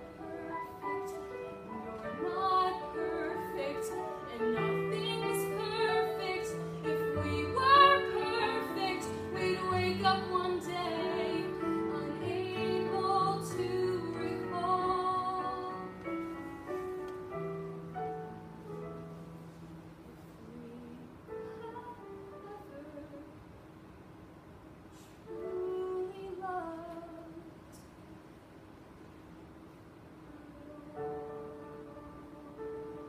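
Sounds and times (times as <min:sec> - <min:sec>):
girl singing: 0:00.0 - 0:16.0, 0:25.3 - 0:27.6.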